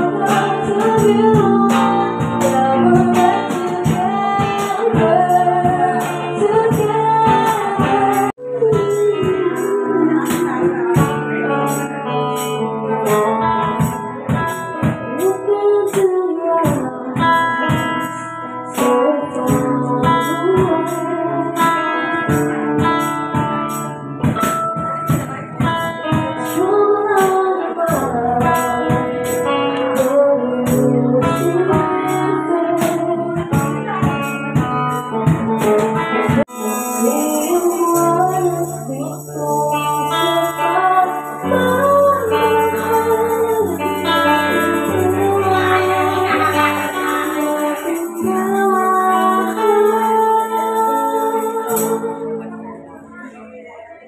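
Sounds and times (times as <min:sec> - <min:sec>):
acoustic guitar: 0:00.0 - 0:54.0
woman singing: 0:00.0 - 0:54.0.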